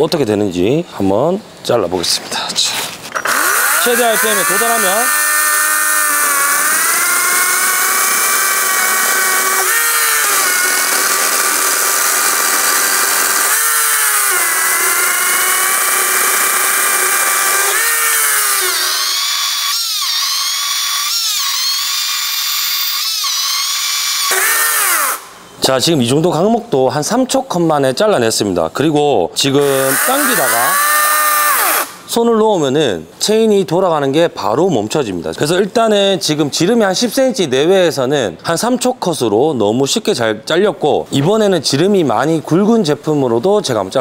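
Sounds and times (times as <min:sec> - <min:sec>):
electric chainsaw cutting wood: 0:03.2 - 0:25.4, 0:29.6 - 0:32.1.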